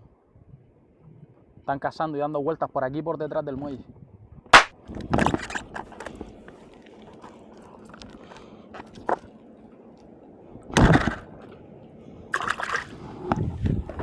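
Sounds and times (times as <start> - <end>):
water lapping at paddle board: 12.3 - 13.3.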